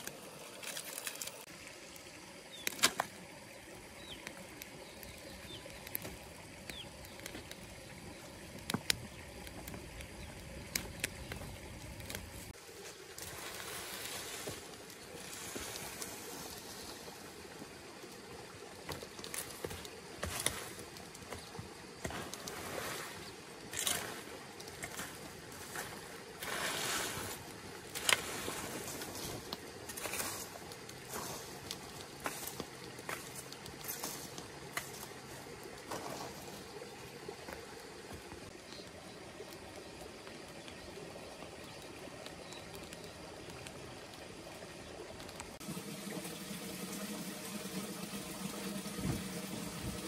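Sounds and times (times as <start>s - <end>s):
dry leaves rustling: 0.0s - 1.5s, 11.4s - 17.1s
fire popping and snapping: 0.0s - 17.1s, 17.9s - 38.9s
brush fire crackling: 0.0s - 50.0s.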